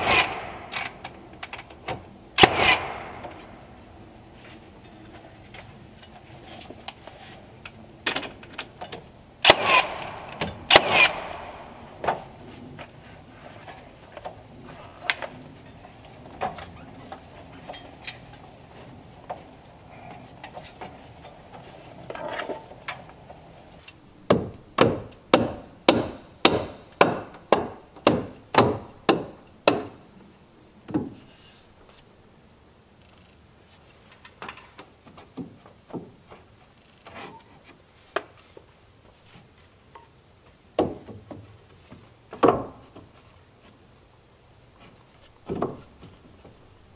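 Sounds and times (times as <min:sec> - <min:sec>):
hammer driving nails into wood: 0:00.0 - 0:01.1, 0:02.4 - 0:03.5, 0:09.4 - 0:12.3, 0:24.3 - 0:30.0.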